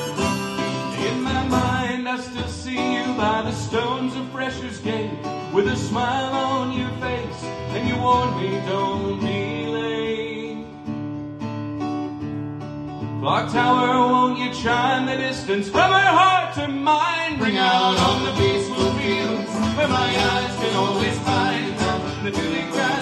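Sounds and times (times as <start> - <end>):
harmonica melody: 0.0 - 1.9, 17.4 - 23.0
banjo picking: 0.0 - 2.0, 17.4 - 23.0
acoustic guitar strumming: 0.0 - 23.0.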